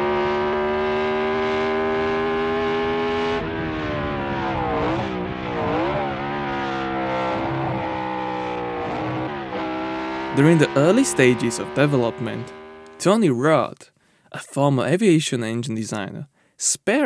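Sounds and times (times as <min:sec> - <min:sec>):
racing engine revving: 0:00.0 - 0:13.2.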